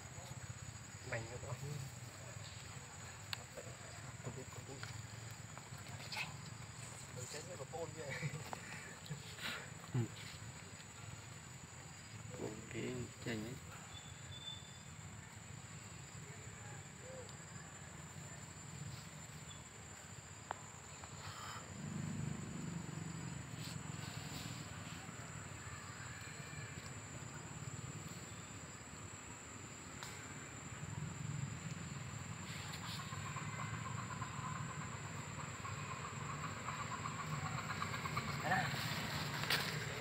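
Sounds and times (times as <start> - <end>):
faint chirps: 0.0 - 29.0
high insect drone: 0.0 - 40.0
fast pulsing chirr: 31.8 - 40.0.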